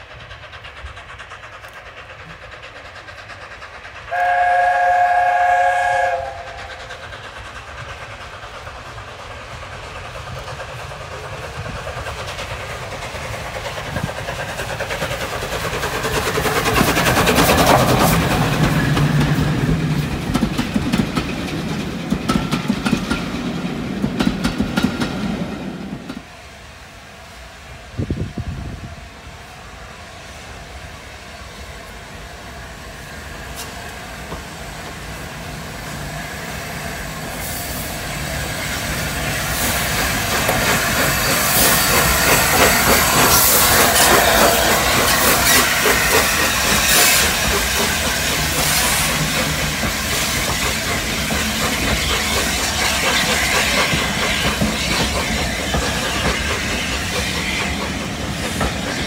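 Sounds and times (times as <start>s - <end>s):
hiss of steam: 0.0s - 59.0s
steam locomotive passing: 0.0s - 59.0s
wheels clicking over rail joints: 6.2s - 26.3s, 39.0s - 59.0s.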